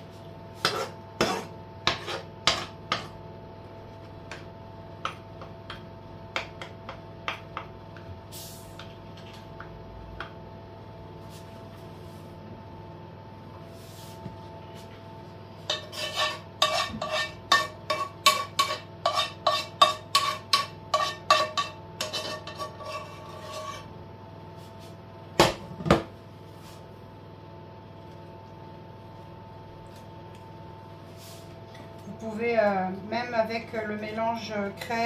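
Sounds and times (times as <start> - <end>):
metal spoon scraping frying pan: 15.7 - 23.9.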